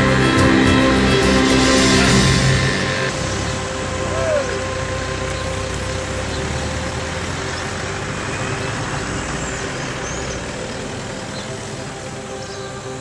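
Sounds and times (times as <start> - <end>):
vehicles driving past: 0.0 - 13.0.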